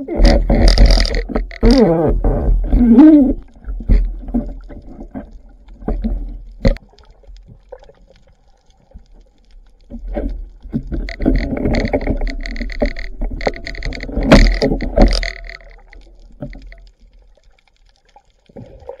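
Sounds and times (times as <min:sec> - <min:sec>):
underwater knocks and clicks: 0:00.0 - 0:19.0
steady tones: 0:10.7 - 0:16.8.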